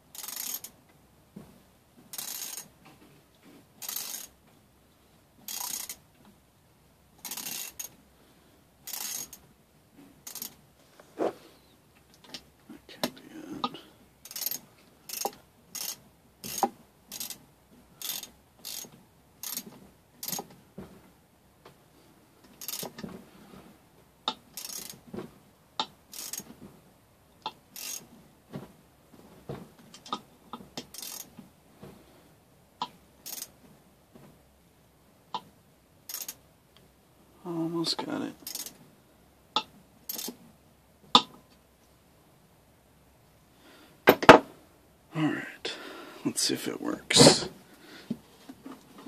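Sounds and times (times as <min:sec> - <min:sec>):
hand tools clicking: 0:14.2 - 0:17.4.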